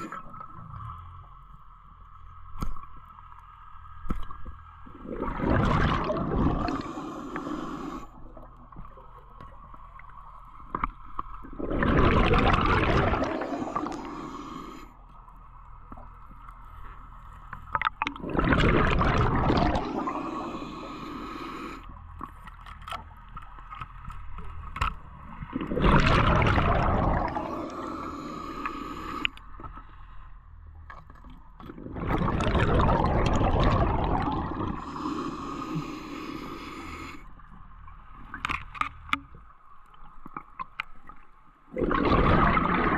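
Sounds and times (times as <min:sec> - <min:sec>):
underwater exhaled bubbles rushing: 0:04.9 - 0:08.8, 0:11.4 - 0:14.8, 0:17.8 - 0:21.2, 0:25.3 - 0:29.3, 0:31.6 - 0:36.8, 0:41.7 - 0:42.9.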